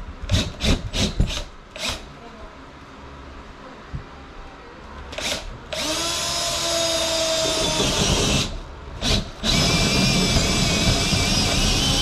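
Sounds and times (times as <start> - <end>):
cordless drill boring through wall: 0.3 - 2.0, 5.2 - 12.0.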